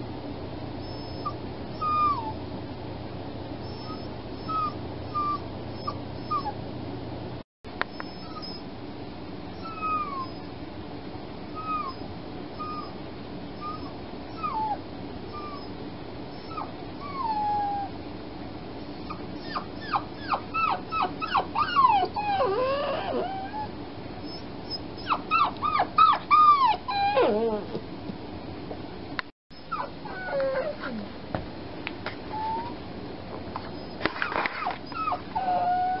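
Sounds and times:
puppy whining and whimpering: 0.8 - 2.4, 3.6 - 6.6, 7.9 - 8.6, 9.6 - 10.5, 11.5 - 13.0, 13.6 - 15.7, 16.3 - 18.0, 18.8 - 27.9, 29.6 - 31.1, 32.3 - 32.8, 33.7 - 36.0.

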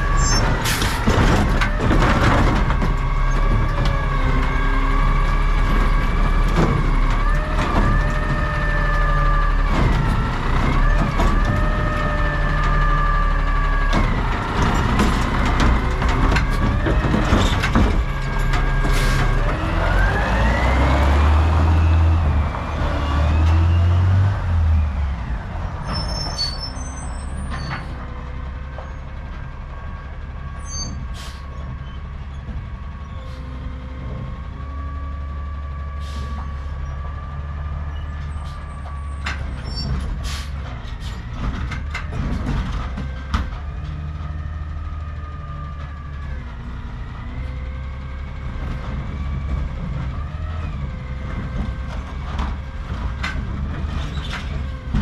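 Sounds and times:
garbage truck diesel engine revving: 0.0 - 55.0
clicks and clanks: 38.8 - 44.3, 51.3 - 55.0.

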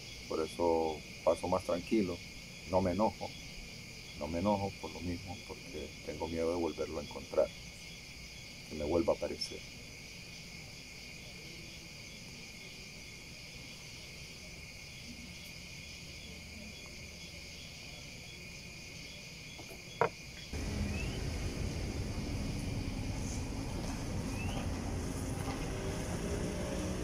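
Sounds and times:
crickets trilling: 0.0 - 27.0
faint pulsing chirp: 15.0 - 25.0
low street traffic: 19.6 - 27.0.

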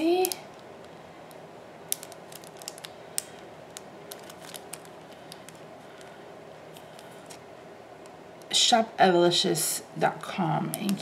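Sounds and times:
plastic packet crinkling: 1.9 - 6.2.

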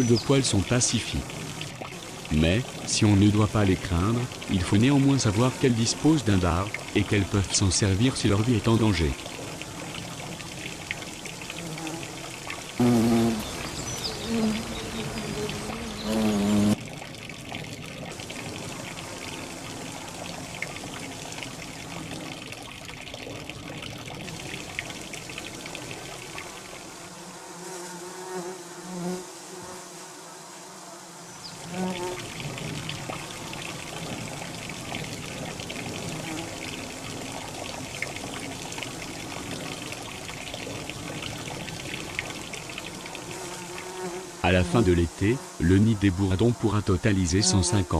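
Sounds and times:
bumblebees buzzing: 0.0 - 16.8, 24.2 - 47.9.

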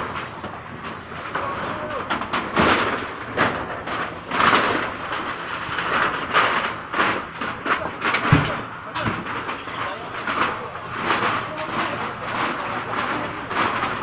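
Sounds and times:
knocks and clatter: 0.0 - 14.0
outdoor commotion: 0.0 - 14.0
people's voices: 1.2 - 2.2, 7.6 - 14.0.

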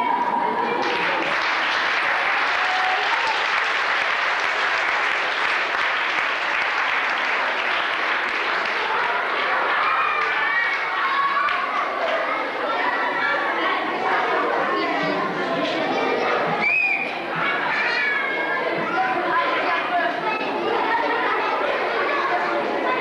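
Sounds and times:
voices: 0.0 - 23.0
audience applauding: 0.7 - 12.4.

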